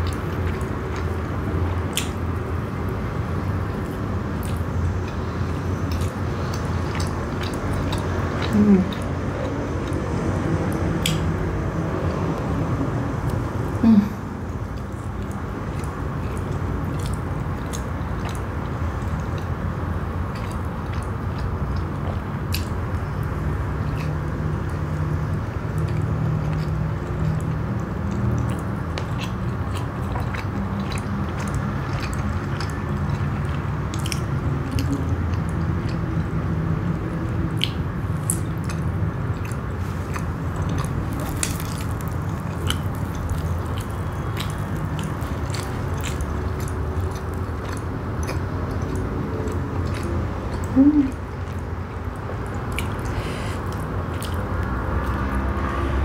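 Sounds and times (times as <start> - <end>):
chewing with wet mouth clicks: 0.0 - 13.6, 14.5 - 56.0.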